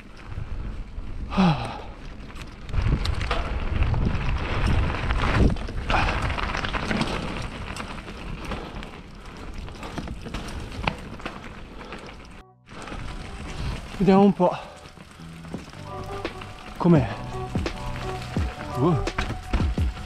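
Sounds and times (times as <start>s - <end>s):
wind rumbling on microphone: 0.0s - 14.1s
bike tyre noise: 0.0s - 20.0s
bike rattling knocks: 17.6s - 20.0s.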